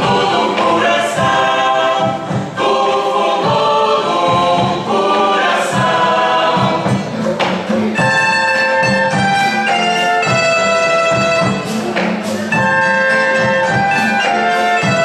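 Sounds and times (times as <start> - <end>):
group of voices singing: 0.0 - 10.5
steady beat: 0.0 - 15.0.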